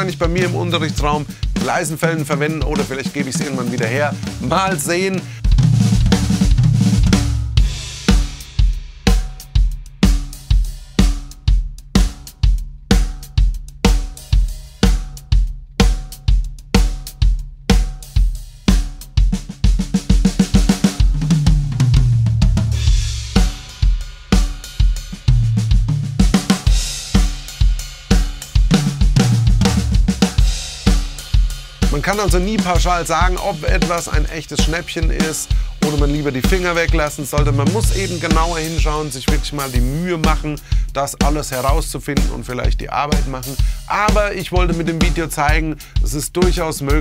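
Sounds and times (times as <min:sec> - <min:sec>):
tom fills: 0:00.0 - 0:11.4, 0:21.0 - 0:47.0
drum kit groove: 0:00.0 - 0:47.0.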